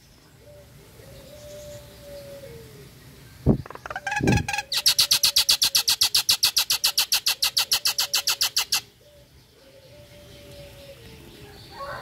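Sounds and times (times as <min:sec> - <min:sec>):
myna rapid chattering call: 0:03.6 - 0:08.8.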